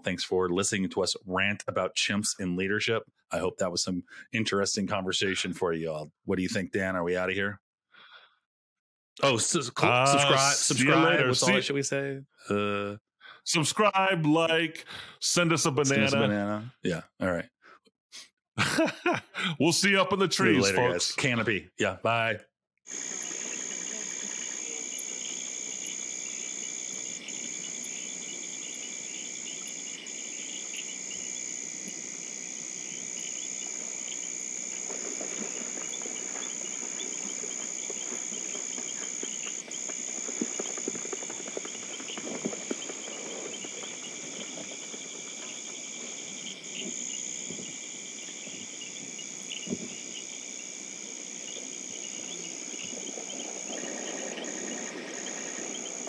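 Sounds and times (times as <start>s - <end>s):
insect chorus: 9.2s - 11.6s, 22.9s - 56.0s.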